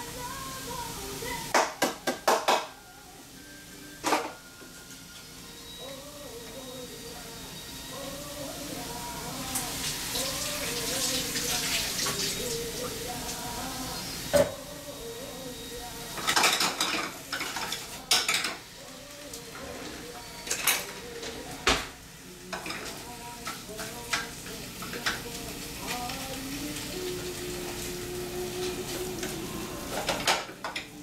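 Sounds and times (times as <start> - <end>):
dishes and utensils clinking: 4.0 - 5.8, 16.1 - 27.1, 28.5 - 31.0.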